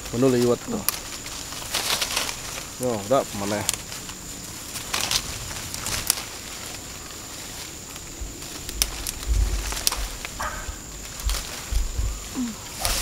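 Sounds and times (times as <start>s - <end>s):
leaves and branches rustling: 0.0s - 13.0s
twigs cracking: 0.0s - 13.0s
low rumble: 8.0s - 12.8s.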